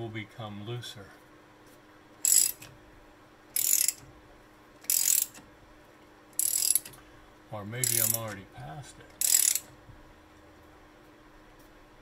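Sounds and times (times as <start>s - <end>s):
scissor jack cranking: 2.2s - 2.7s, 3.6s - 4.0s, 4.9s - 5.4s, 6.4s - 6.9s, 7.8s - 8.4s, 9.2s - 9.7s.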